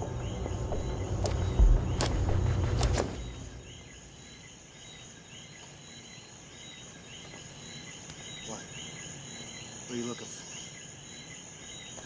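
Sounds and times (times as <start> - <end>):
loud low rumble: 0.0 - 3.8
insects chirping: 0.0 - 12.0.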